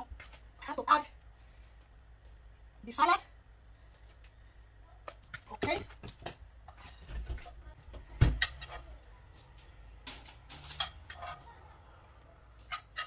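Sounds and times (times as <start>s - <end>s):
utensils and dishes clinking: 8.3s - 11.6s, 12.6s - 13.0s.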